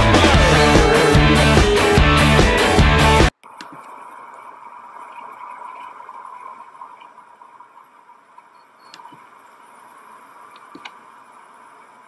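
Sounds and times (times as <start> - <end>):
faint steady hiss: 3.4 - 12.0.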